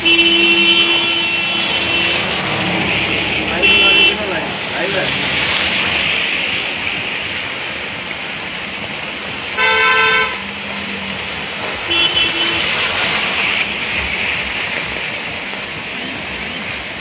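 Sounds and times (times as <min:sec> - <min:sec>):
vehicle horn honking: 0:00.0 - 0:02.3, 0:03.5 - 0:04.3, 0:09.6 - 0:10.4, 0:11.9 - 0:13.0
car tyres on wet street: 0:00.0 - 0:17.0
heavy rain: 0:00.0 - 0:17.0.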